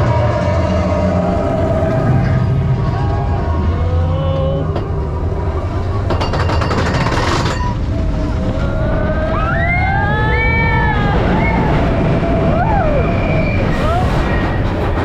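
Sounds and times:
roller coaster rumbling on track: 0.0s - 15.0s
rapid rattling clatter: 6.0s - 7.9s
riders screaming: 7.9s - 14.6s.

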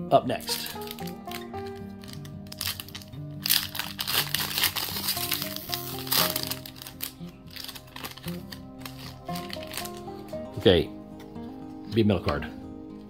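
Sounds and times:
background music: 0.0s - 13.0s
foil wrapper crinkling: 0.4s - 10.5s
cards rustling: 0.4s - 11.3s.

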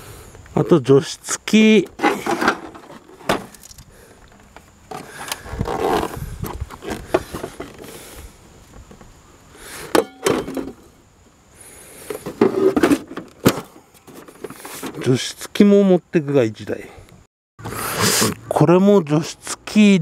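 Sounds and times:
plastic scraping rustle: 2.0s - 3.8s, 4.4s - 8.0s, 12.1s - 15.1s.

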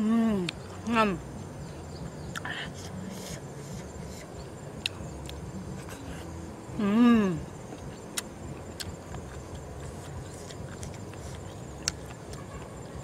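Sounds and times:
chewing clicks and smacks: 7.7s - 12.6s.

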